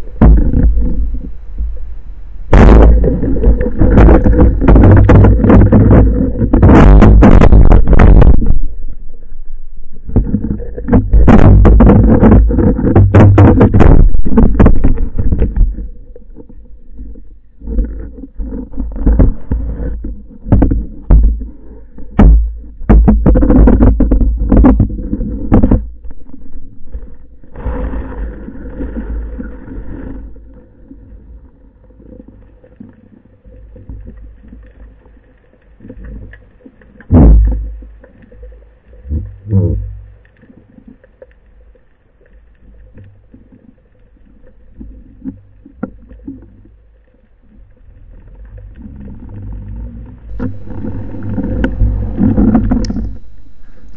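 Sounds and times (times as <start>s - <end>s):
rushing noise: 0.0s - 5.7s, 50.3s - 53.9s
heavy underwater knocks: 0.0s - 8.7s, 10.1s - 15.6s, 20.5s - 21.4s, 22.2s - 25.9s, 50.3s - 53.9s
low rumble of moving water: 0.0s - 53.9s.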